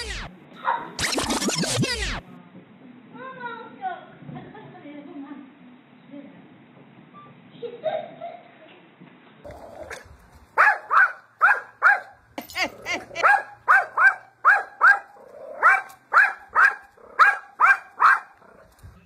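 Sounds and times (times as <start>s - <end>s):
small dog barking: 10.6s - 12.2s, 12.8s - 18.6s.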